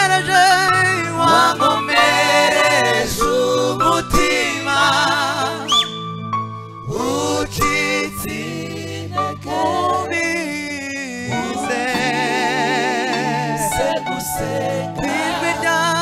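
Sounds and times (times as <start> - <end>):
men singing in parts: 0.0 - 5.8, 6.9 - 16.0
keyboard chords: 0.0 - 10.6, 11.2 - 16.0.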